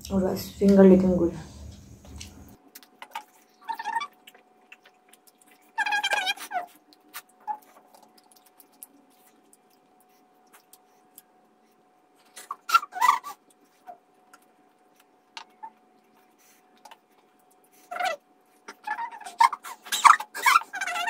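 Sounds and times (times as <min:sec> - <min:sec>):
eating clicks: 0:02.0 - 0:11.3
chewing and smacking: 0:02.1 - 0:21.0.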